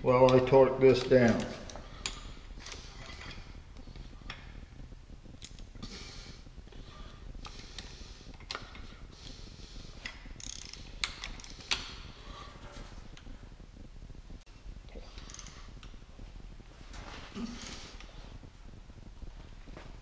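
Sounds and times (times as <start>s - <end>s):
ratchet clicks: 10.0s - 11.9s.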